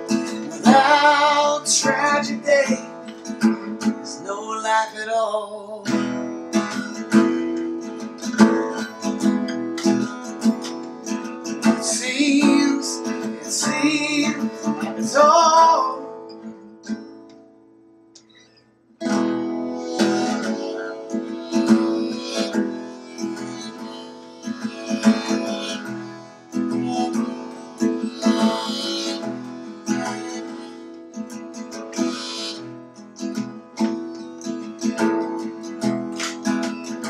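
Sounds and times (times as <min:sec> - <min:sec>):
acoustic guitar strumming: 0:00.0 - 0:37.0
wordless singing: 0:00.2 - 0:03.0, 0:11.7 - 0:16.2.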